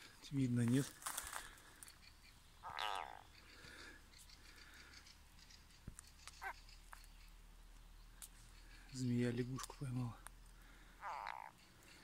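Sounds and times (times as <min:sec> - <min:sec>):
frog distress croak: 0:02.6 - 0:03.4, 0:11.0 - 0:11.6.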